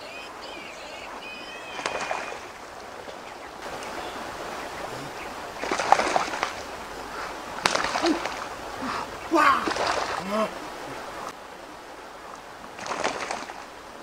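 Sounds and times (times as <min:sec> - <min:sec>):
bird chirps: 0:00.0 - 0:07.4
steady hiss: 0:00.0 - 0:12.9.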